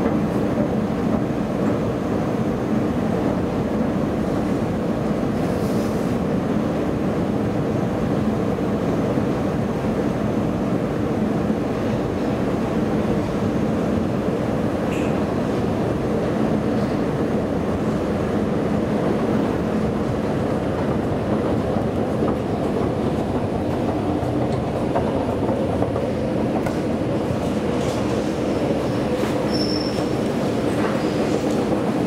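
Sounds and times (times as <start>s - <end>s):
brief high squeak: 29.5s - 30.2s.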